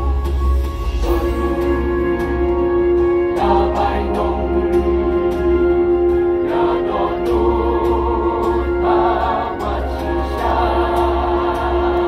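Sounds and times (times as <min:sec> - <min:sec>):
mixed choir singing a hymn: 0:03.3 - 0:12.0.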